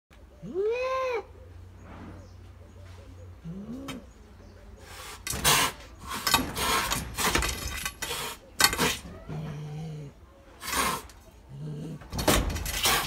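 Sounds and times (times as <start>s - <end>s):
cat hissing and spitting: 10.6s - 11.2s.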